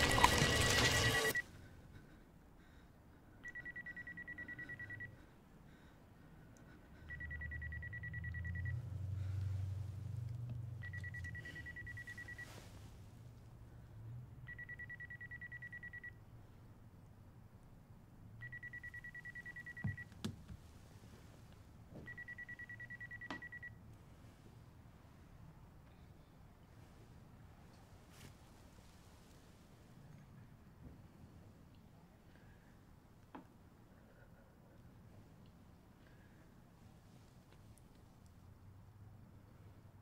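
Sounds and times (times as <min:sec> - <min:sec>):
phone ringing: 0:00.0 - 0:01.4, 0:03.4 - 0:05.2, 0:07.1 - 0:08.8, 0:10.8 - 0:12.6, 0:14.5 - 0:16.2, 0:18.4 - 0:20.1, 0:22.0 - 0:23.7.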